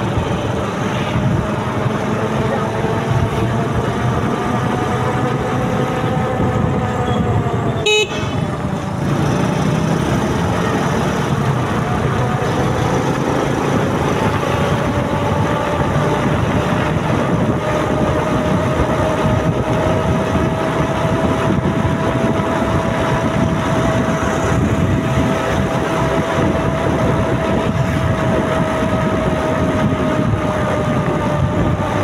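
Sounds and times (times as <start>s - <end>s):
motorcycle engine running: 0.0s - 32.0s
wind and road noise: 0.0s - 32.0s
vehicle horn beep: 7.0s - 8.5s.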